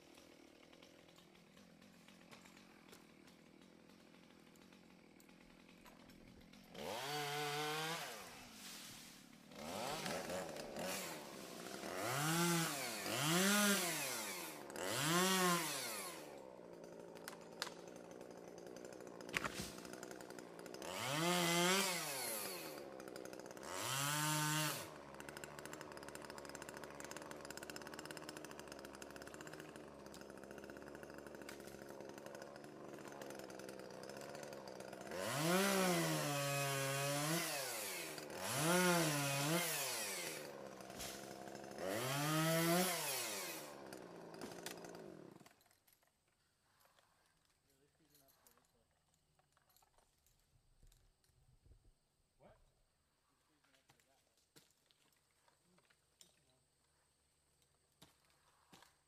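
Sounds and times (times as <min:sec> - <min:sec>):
chainsaw idling: 0:00.0 - 0:45.6
chainsaw revving: 0:00.0 - 0:45.6.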